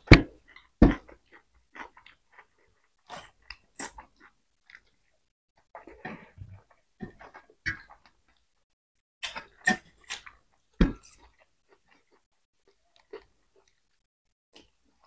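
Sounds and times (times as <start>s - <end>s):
chewing and lip-smacking: 0.4s - 8.6s, 9.2s - 15.0s.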